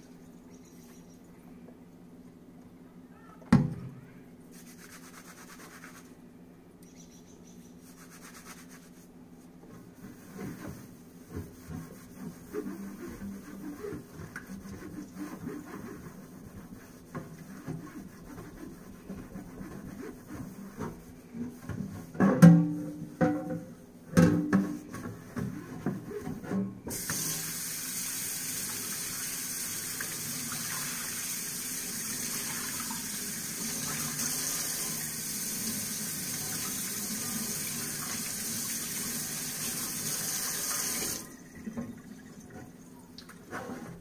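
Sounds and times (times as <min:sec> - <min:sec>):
dish cloth scrubbing metal sheet: 0:04.5 - 0:06.1, 0:07.8 - 0:09.1, 0:09.7 - 0:23.6, 0:24.3 - 0:31.4, 0:43.4 - 0:44.0
pan knocking in sink: 0:22.2 - 0:24.9.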